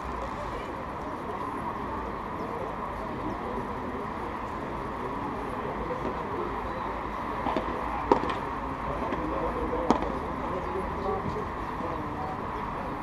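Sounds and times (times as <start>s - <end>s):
outdoor background noise: 0.0s - 13.0s
rackets striking ball: 9.8s - 10.2s.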